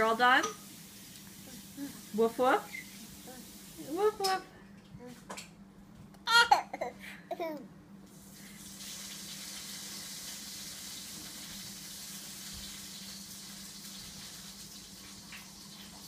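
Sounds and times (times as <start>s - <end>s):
water running from a tap: 0.0s - 4.4s, 8.1s - 16.0s
toddler giggling: 6.3s - 7.6s.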